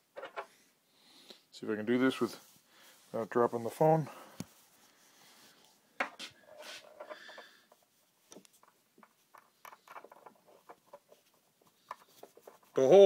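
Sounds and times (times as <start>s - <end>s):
light clicks and taps on wood: 7.0s - 12.7s.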